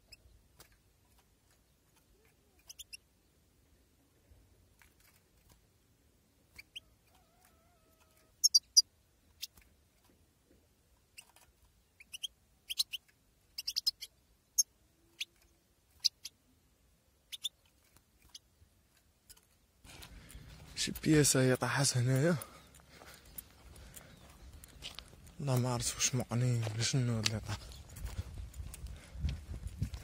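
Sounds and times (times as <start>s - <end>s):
goldfinch calling: 2.6s - 3.0s, 8.4s - 8.8s, 12.0s - 14.1s, 17.3s - 17.6s.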